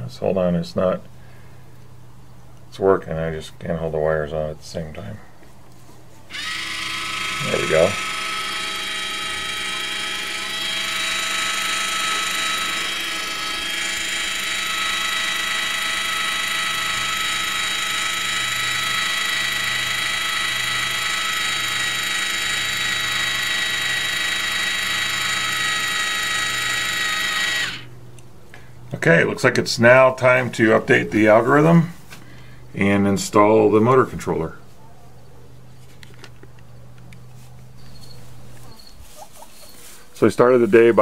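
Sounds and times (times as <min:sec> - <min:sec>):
small motor whining: 0:06.3 - 0:27.9.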